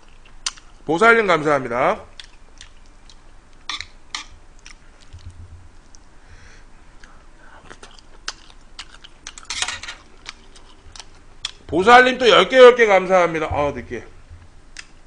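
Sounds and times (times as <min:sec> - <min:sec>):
person chewing food: 0:00.0 - 0:00.8, 0:02.1 - 0:06.2, 0:06.9 - 0:11.7, 0:14.7 - 0:15.0
wet mouth clicks and smacks: 0:00.0 - 0:00.8, 0:02.2 - 0:06.0, 0:10.2 - 0:11.6, 0:14.8 - 0:15.0.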